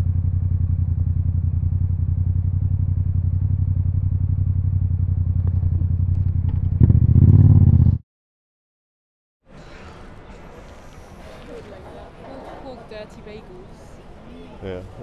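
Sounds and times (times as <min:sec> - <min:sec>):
motorcycle engine running: 0:00.0 - 0:08.0.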